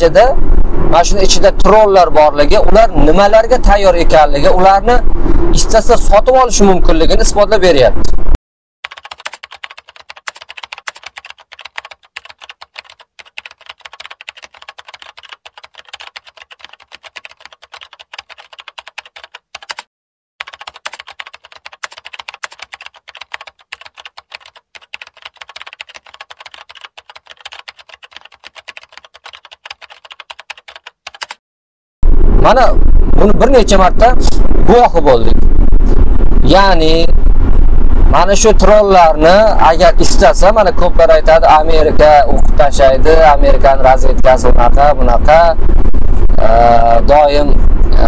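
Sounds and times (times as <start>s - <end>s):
keyboard typing clicks: 8.9s - 19.8s, 20.4s - 31.4s.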